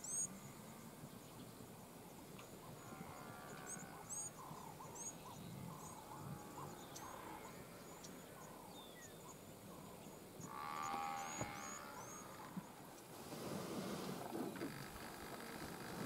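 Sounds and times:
buffalo calls: 0:10.4 - 0:12.6.

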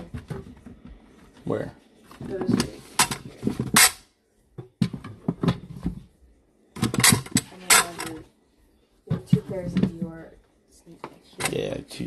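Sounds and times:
shoes clattering on metal shelving: 0:06.7 - 0:08.2.

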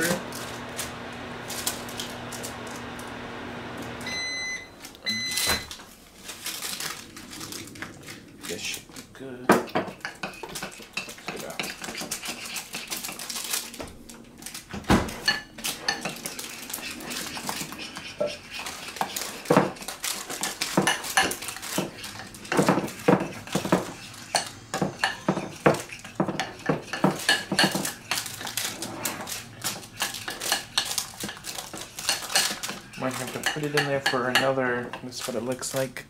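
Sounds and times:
kitchen utensils clinking on dishes: 0:15.2 - 0:28.6, 0:29.6 - 0:35.0.

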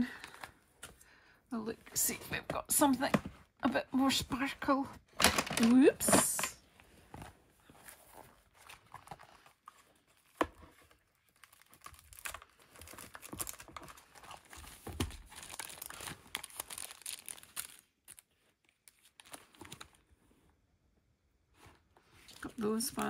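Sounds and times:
plastic rustling and crinkling: 0:01.9 - 0:20.4.

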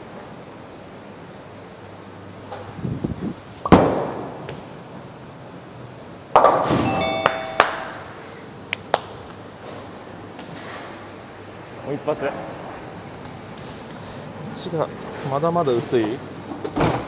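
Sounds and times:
bowling ball thud and roll: 0:03.6 - 0:04.6, 0:06.3 - 0:07.8.

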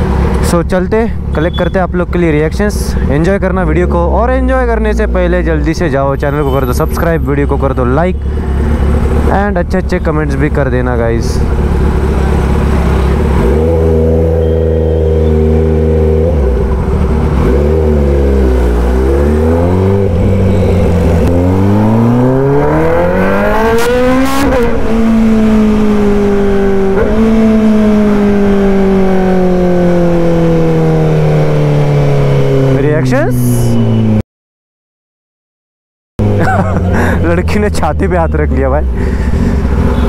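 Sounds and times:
motorcycle engine revving: 0:08.2 - 0:34.2, 0:36.2 - 0:38.3, 0:39.0 - 0:40.0.

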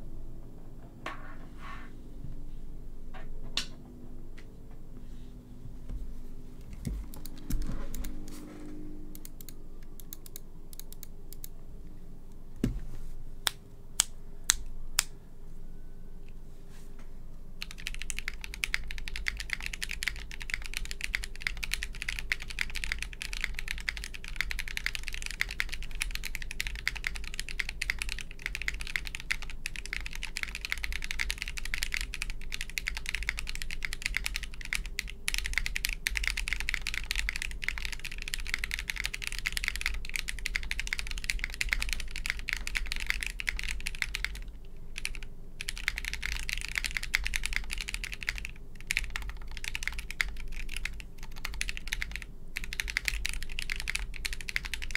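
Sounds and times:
fast keyboard typing: 0:06.7 - 0:08.3, 0:17.6 - 0:54.9.

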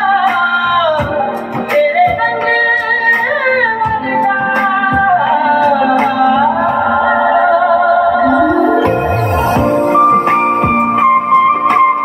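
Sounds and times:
woman singing: 0:00.0 - 0:09.2
low drone: 0:08.2 - 0:10.5.

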